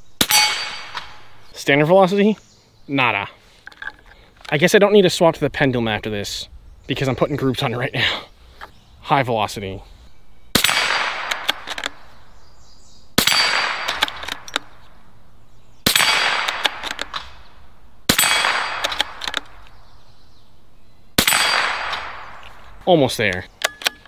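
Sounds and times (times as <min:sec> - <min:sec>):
steel target clanging: 0:00.2 - 0:01.2, 0:21.2 - 0:22.1
rifle shots: 0:10.5 - 0:12.0, 0:13.2 - 0:14.5, 0:15.8 - 0:17.4, 0:18.1 - 0:19.6, 0:21.2 - 0:22.4.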